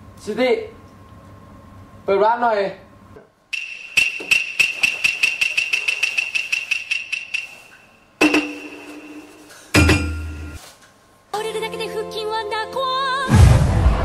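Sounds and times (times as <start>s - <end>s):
desk bell dinging rapidly: 3.6s - 10.6s.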